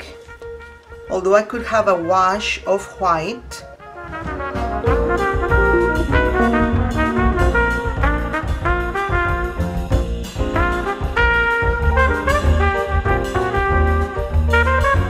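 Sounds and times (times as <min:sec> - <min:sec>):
instrumental background music: 0:00.0 - 0:15.0.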